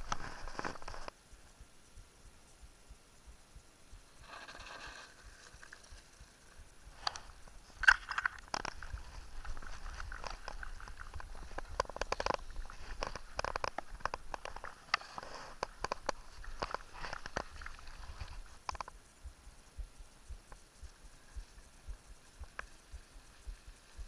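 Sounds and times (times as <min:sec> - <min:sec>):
small rattles: 0:03.8 - 0:24.0
bike tyres crunching gravel: 0:07.2 - 0:18.6.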